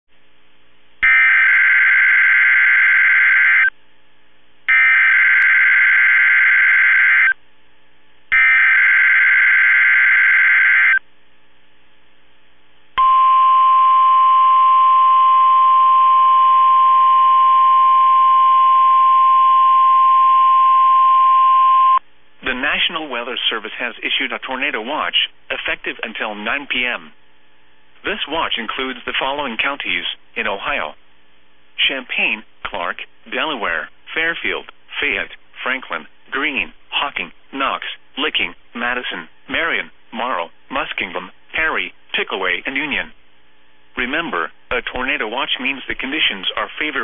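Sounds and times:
warning alarm tone: 0:01.0 - 0:03.7, 0:04.7 - 0:07.4, 0:08.3 - 0:11.0, 0:13.0 - 0:22.0.

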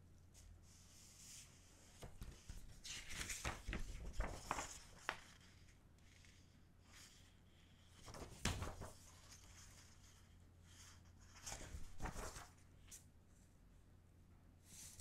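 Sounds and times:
paper and card rustling: 0:01.4 - 0:07.2, 0:07.9 - 0:12.6.

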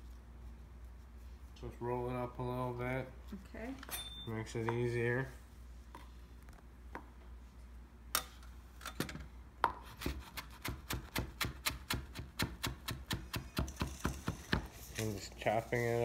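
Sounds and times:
knife chopping on plastic board: 0:09.7 - 0:14.7.

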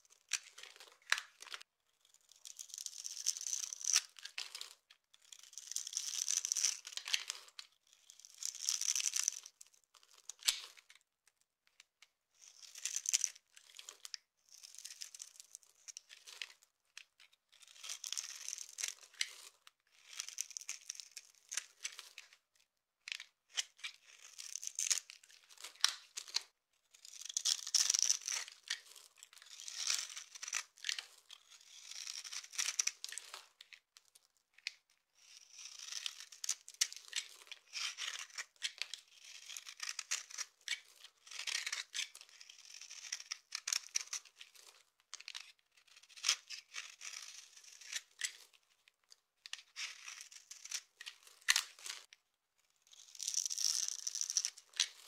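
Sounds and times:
knife scraping soap: 0:00.3 - 0:09.4, 0:17.5 - 0:22.4, 0:23.0 - 0:33.2, 0:34.5 - 0:44.6, 0:45.2 - 0:48.4, 0:49.5 - 0:52.1, 0:52.9 - 0:55.0.

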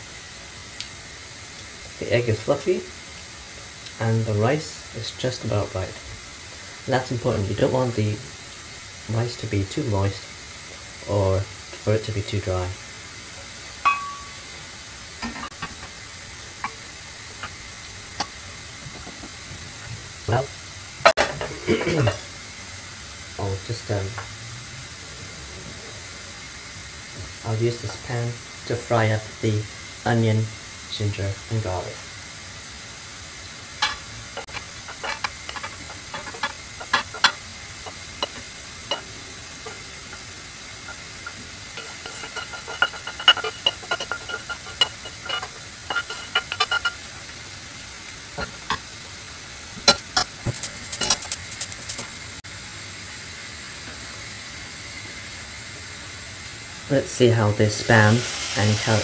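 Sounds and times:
rice sizzling in frying pan: 0:00.0 - 0:59.0
sharp ringing clink: 0:13.9 - 0:14.5
wooden spatula knocking pan: 0:33.8 - 0:40.2, 0:40.9 - 0:47.0.

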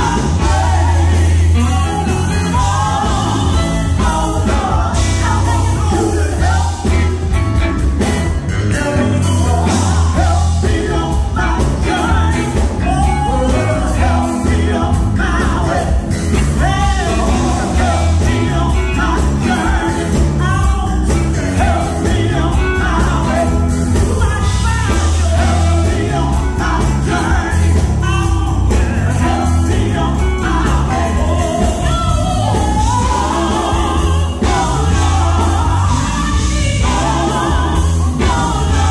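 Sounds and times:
gospel group singing with band: 0:00.0 - 0:38.9
heavy bass line: 0:00.0 - 0:38.9.

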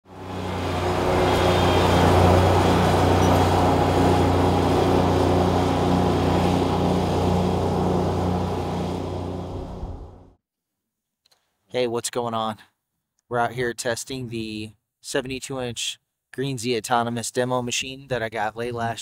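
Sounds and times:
lawn mower engine droning: 0:00.0 - 0:10.3.

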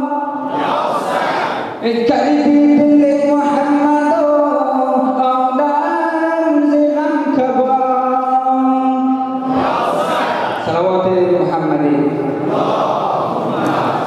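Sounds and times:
young man singing a lament: 0:00.0 - 0:00.5, 0:01.8 - 0:09.5.

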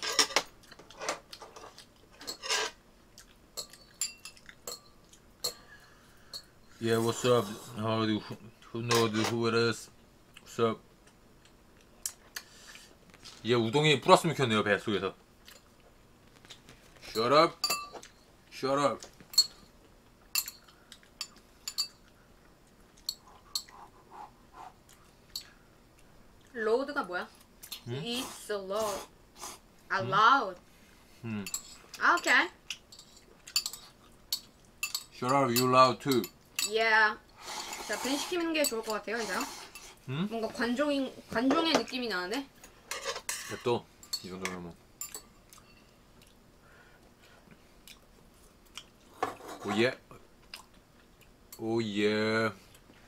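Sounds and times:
chopsticks clinking on bowl and pot: 0:03.6 - 0:06.5, 0:20.3 - 0:22.1, 0:31.4 - 0:36.8, 0:42.9 - 0:45.8.

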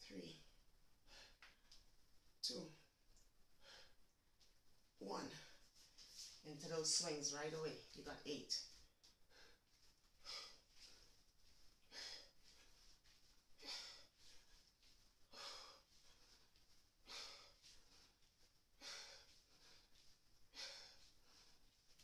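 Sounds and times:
woman breathing hard: 0:09.2 - 0:22.0.

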